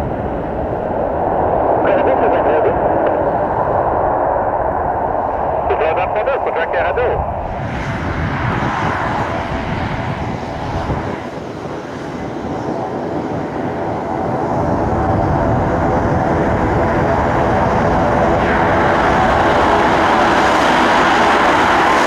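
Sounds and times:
turboprop propeller drone and whine: 0:00.0 - 0:22.0.

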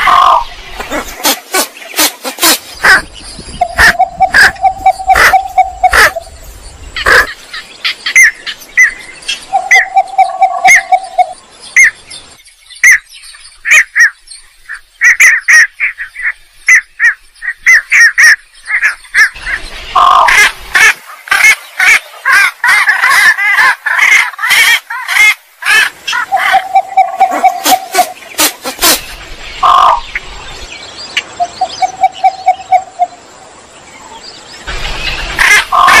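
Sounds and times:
bird chirping and chattering: 0:00.0 - 0:20.5, 0:26.1 - 0:30.3.

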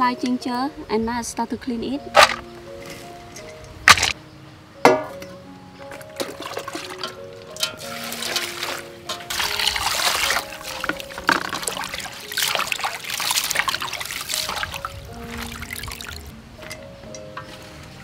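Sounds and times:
water sloshing in metal bowl: 0:05.9 - 0:16.3.

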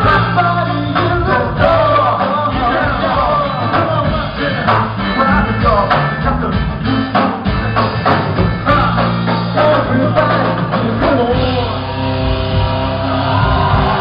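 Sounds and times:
person singing: 0:00.0 - 0:07.2
drums beating: 0:00.0 - 0:14.0
live band playing: 0:00.0 - 0:14.0.

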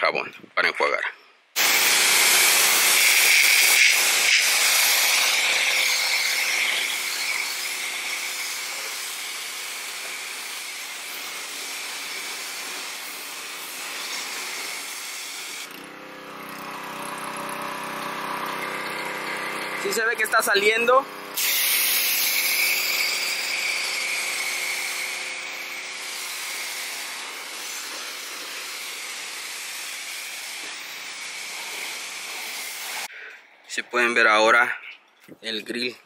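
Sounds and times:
pressure washer spraying water: 0:01.6 - 0:33.1.

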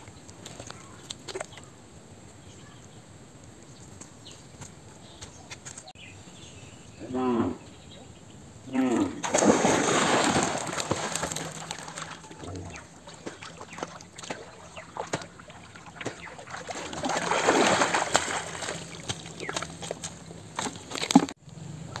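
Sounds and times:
water splashing from swimming: 0:09.2 - 0:21.4.

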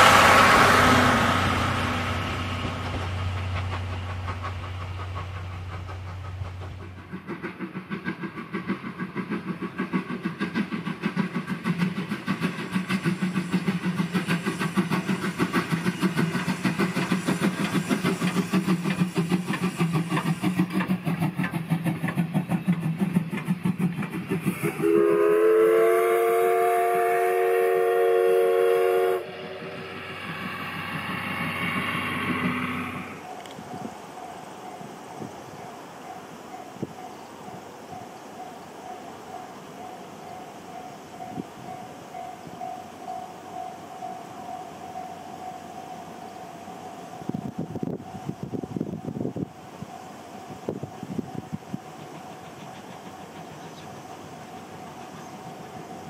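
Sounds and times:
rail clatter: 0:00.0 - 0:25.1, 0:27.8 - 0:56.0
steam locomotive exhaust beats: 0:00.0 - 0:56.0
steam whistle chord: 0:24.6 - 0:33.6.

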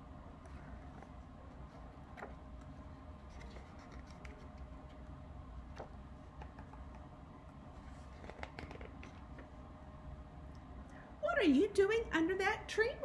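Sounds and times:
low steady hum: 0:00.0 - 0:13.0
book pages rustling: 0:00.4 - 0:05.0, 0:07.7 - 0:09.5.

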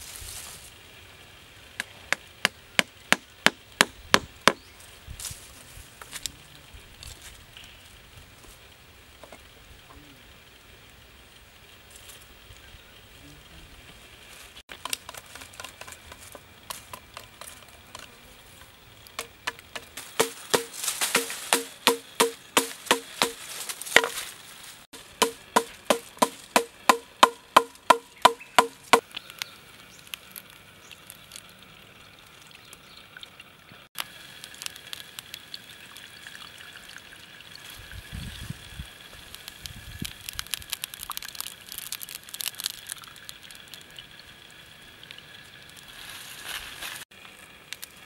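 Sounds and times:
mallet knocking blade into bamboo: 0:19.2 - 0:23.4
husk crackling and tearing: 0:39.4 - 0:43.3.

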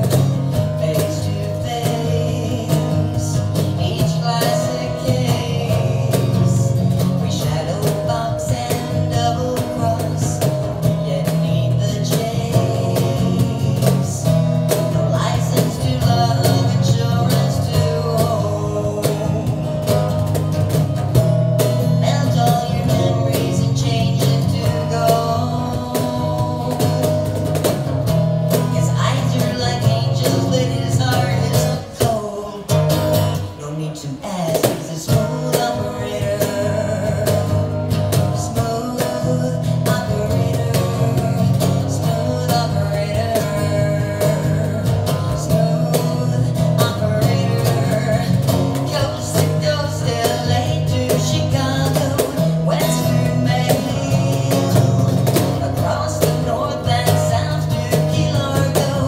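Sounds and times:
cajon beat: 0:00.0 - 0:59.0
strummed acoustic guitar: 0:00.0 - 0:59.0
woman singing: 0:00.0 - 0:59.0.

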